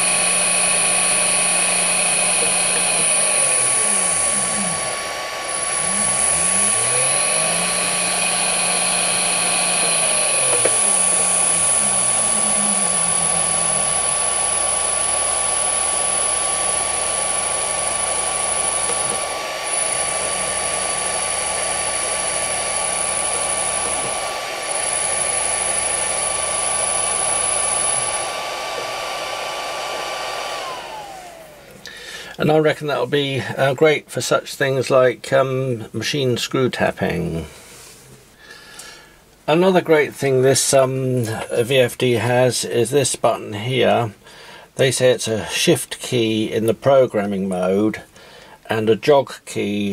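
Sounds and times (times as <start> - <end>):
high-pitched whine: 0.0 - 31.9
electric motor humming: 0.0 - 32.8
cooling fan: 0.0 - 34.8.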